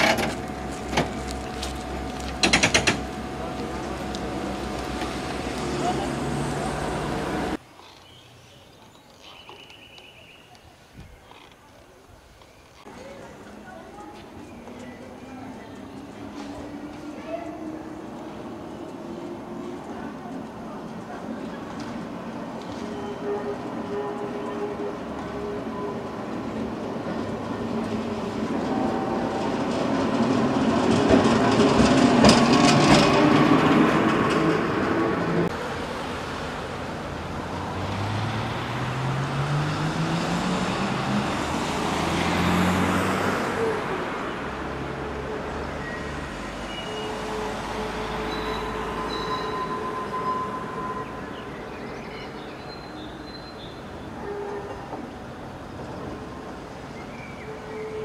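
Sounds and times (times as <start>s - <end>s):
tram wheels clicking over rail joints: 0.0s - 7.6s, 14.2s - 22.9s, 25.0s - 35.5s.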